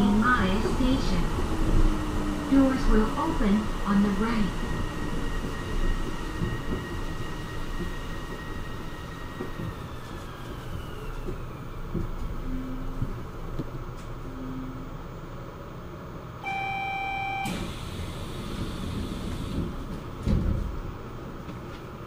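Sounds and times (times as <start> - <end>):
train motor whine: 0.0 - 22.0
loud electronic beep: 16.4 - 17.6
thump: 20.2 - 20.7.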